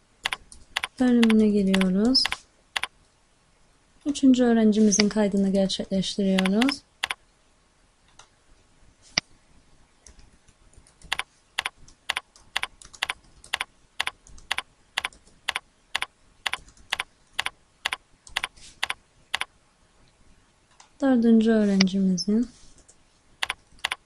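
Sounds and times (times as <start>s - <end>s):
computer keyboard typing: 0.2s - 2.9s, 6.4s - 7.2s, 10.0s - 19.5s, 22.8s - 24.0s.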